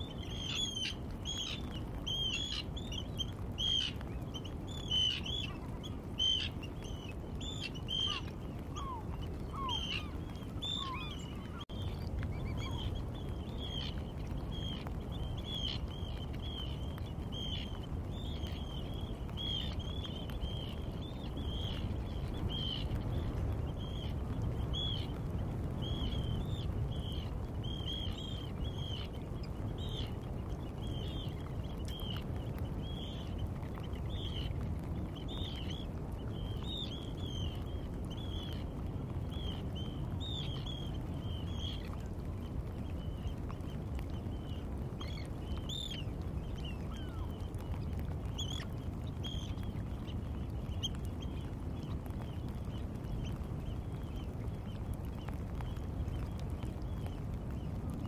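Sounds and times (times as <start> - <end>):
low background rush: 0.0 - 58.0
lower falling bird calls: 0.0 - 58.0.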